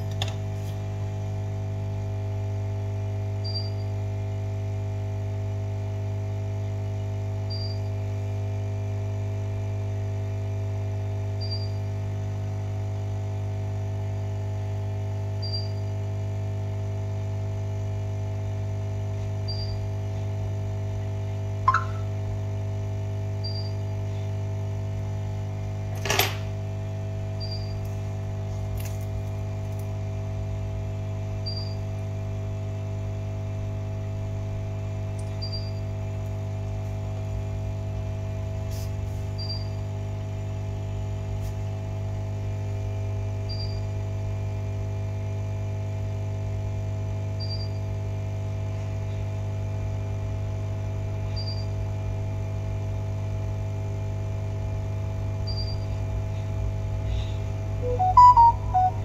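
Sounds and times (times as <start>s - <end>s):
electrical hum: 0.0s - 4.1s, 17.2s - 44.0s, 52.5s - 59.0s
short high beep: 21.7s - 22.1s, 57.8s - 59.0s.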